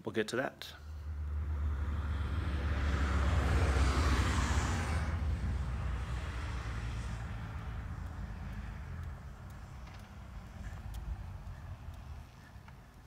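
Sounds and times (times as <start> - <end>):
low rumble: 0.9 - 12.4
motorcycle passing: 0.9 - 13.0.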